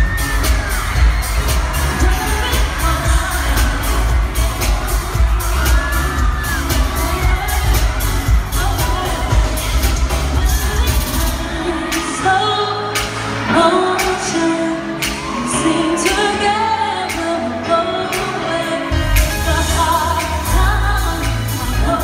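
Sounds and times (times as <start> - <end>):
heavy bass: 0.0 - 12.4, 18.9 - 22.0
live pop music: 0.0 - 22.0
woman singing: 0.0 - 22.0.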